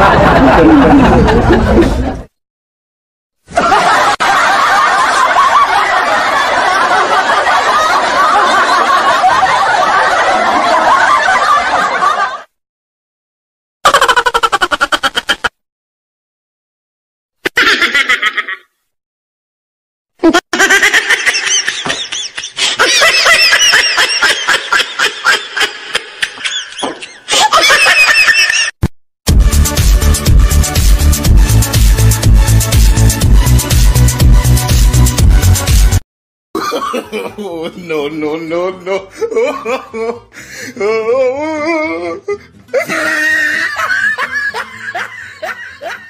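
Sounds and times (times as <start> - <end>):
laugh-track laughter: 0.0 - 2.3, 3.5 - 12.6, 13.8 - 15.6, 17.4 - 18.8, 20.2 - 28.8, 36.6 - 46.0
high-pitched laughter: 13.9 - 15.6, 17.4 - 18.8, 20.2 - 28.8, 41.4 - 46.0.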